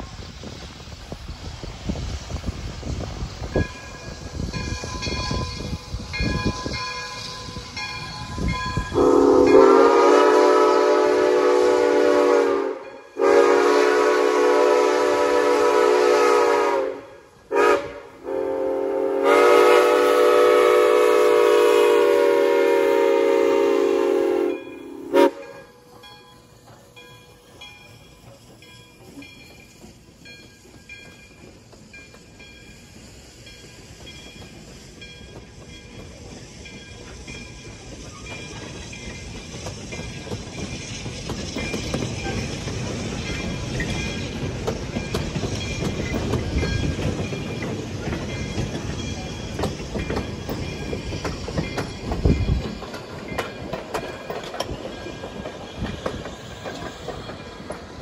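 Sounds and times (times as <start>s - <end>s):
train rumble and clicking: 0.0s - 58.0s
locomotive horn chime: 8.8s - 25.9s.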